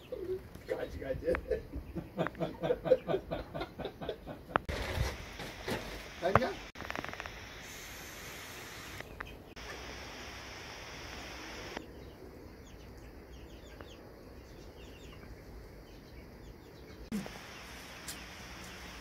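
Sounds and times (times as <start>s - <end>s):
chickens clucking: 0.0s - 6.4s
steady background hiss: 4.7s - 12.5s, 17.1s - 19.0s.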